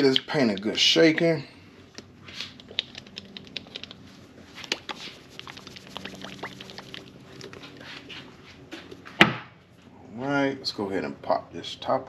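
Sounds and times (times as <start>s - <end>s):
paint can being shaken: 2.6s - 8.1s.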